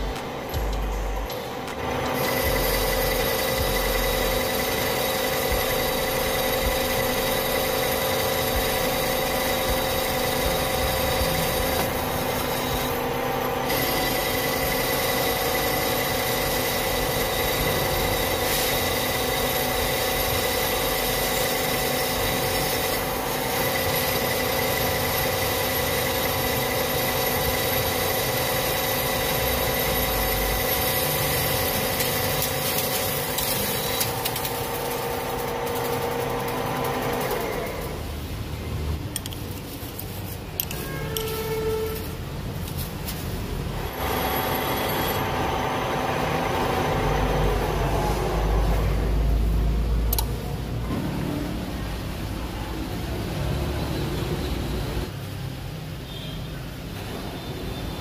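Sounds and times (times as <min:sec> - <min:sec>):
metal lathe hum and whine: 0:00.0 - 0:38.1, 0:43.7 - 0:49.3
hissing of cutting tool: 0:01.3 - 0:38.9.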